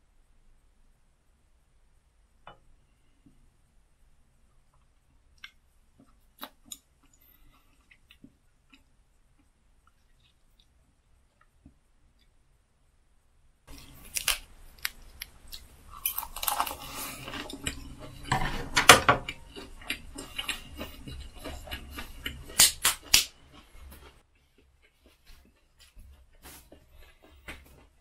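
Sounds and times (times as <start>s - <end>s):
wet chewing: 4.7s - 11.6s, 13.7s - 28.0s
crunching lettuce: 13.7s - 18.3s.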